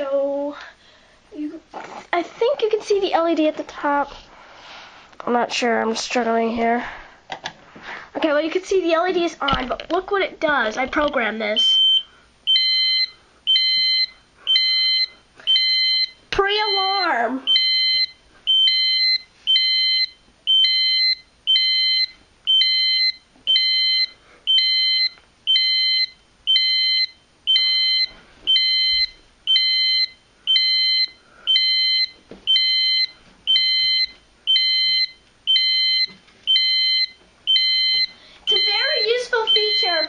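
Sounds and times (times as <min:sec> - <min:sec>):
fire alarm beeping: 0:11.6 - 0:16.2, 0:17.5 - 0:40.0.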